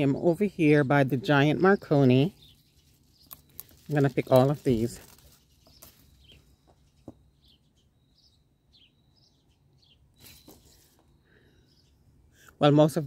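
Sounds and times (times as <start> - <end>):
faint bird chirps: 1.8 - 12.6
brief rustle: 10.2 - 11.1.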